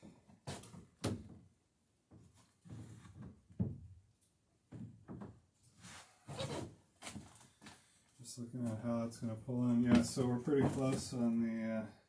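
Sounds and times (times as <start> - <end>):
wooden knocks and thuds: 0.0 - 1.5, 2.1 - 4.0, 4.7 - 5.4, 9.8 - 11.2.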